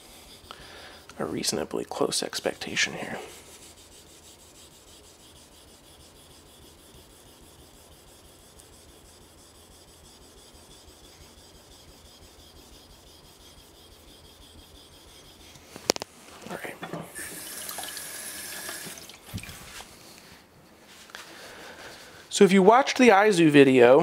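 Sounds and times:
knife scraping on whetstone: 2.7s - 16.0s.

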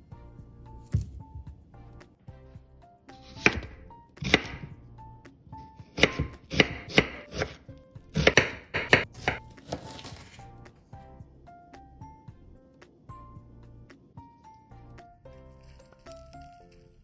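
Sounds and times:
knife slicing onion on board: 3.2s - 4.8s, 5.6s - 10.4s.

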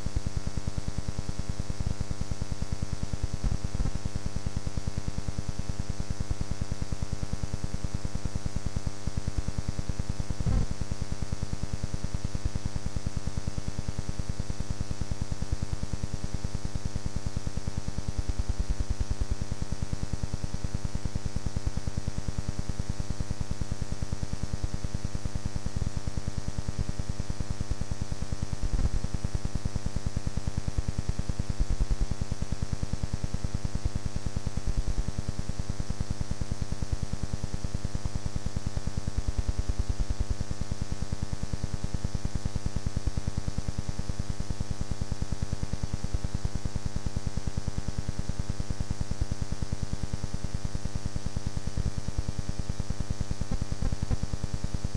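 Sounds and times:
electrical hum and buzz: 0.0s - 23.0s, 23.6s - 36.7s, 52.6s - 54.9s
static hiss: 3.2s - 4.8s, 9.9s - 11.4s, 28.0s - 33.6s, 53.4s - 54.9s.

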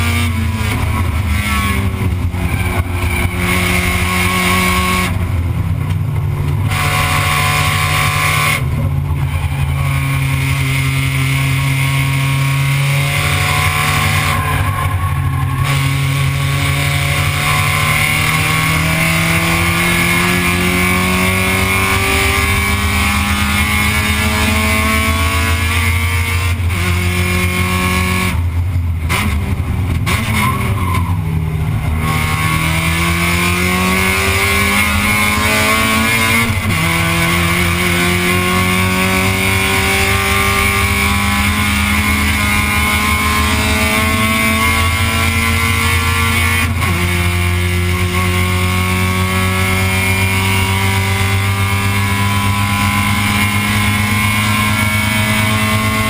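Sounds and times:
racing car engine: 0.0s - 56.0s.

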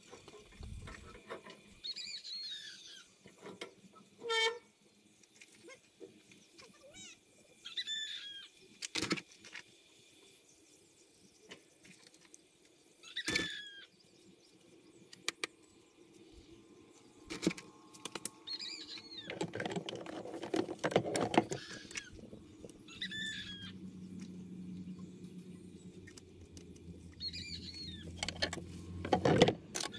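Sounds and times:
bird chirping: 18.0s - 19.4s, 21.6s - 28.2s
kitchen items clattering: 19.3s - 21.8s.

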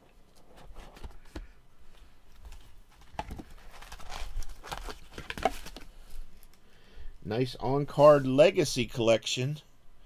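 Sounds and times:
card box being opened: 2.4s - 5.9s.

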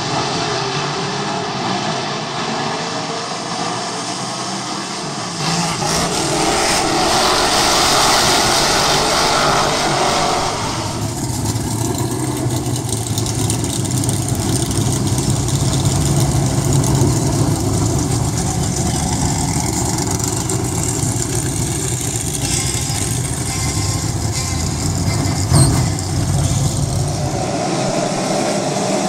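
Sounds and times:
race car engines revving: 0.0s - 29.0s.

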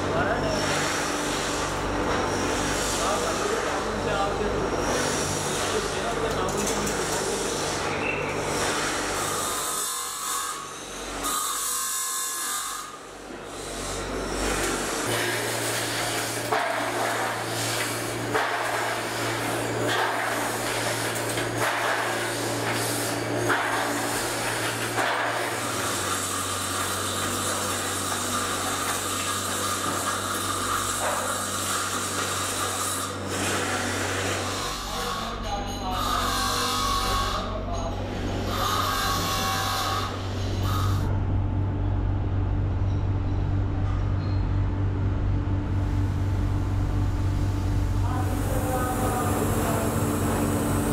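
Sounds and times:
low machine hum: 0.0s - 9.8s, 12.9s - 50.9s
rasping scraping tool: 8.5s - 37.6s, 38.2s - 41.1s.

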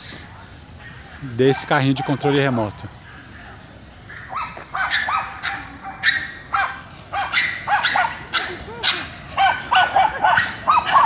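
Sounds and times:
dog barking: 1.4s - 2.8s, 4.1s - 11.0s.

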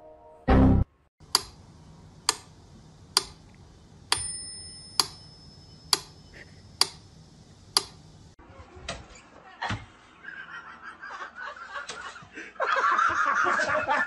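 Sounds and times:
thin high ringing tone: 4.1s - 6.7s.

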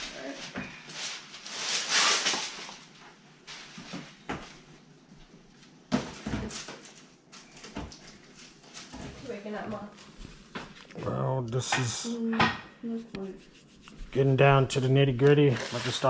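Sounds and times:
kitchen knocks and clunks: 11.7s - 12.7s.

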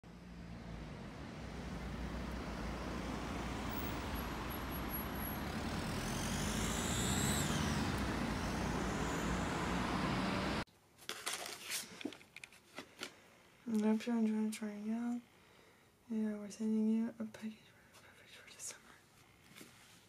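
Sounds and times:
high whine: 0.0s - 10.6s
passing vehicles rumbling: 0.0s - 10.7s
paper and card handled: 11.0s - 13.1s.

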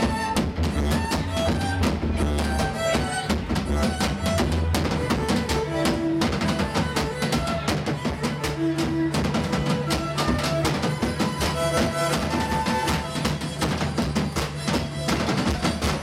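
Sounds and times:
folk-rock band playing: 0.0s - 16.0s
heavy drumming: 0.0s - 16.0s.

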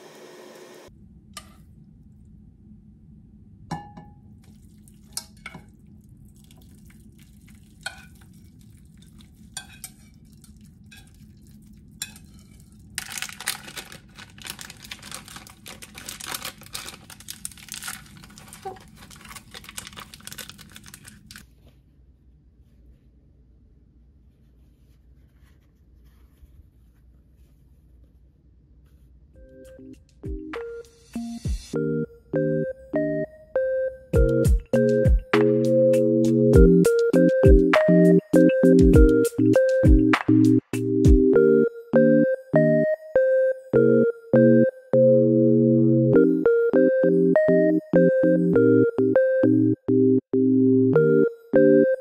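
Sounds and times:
dishes and utensils clinking: 9.5s - 11.3s.

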